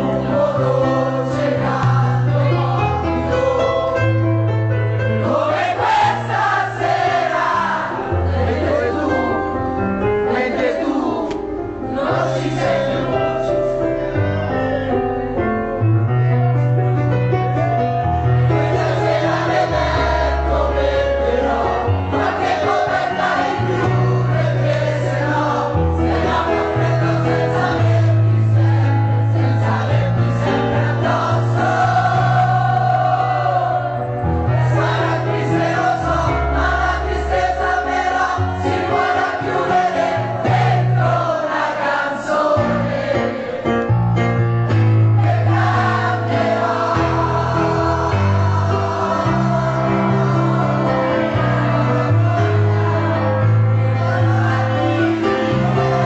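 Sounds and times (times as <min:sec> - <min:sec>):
bass line of held notes: 0:07.8 - 0:37.2.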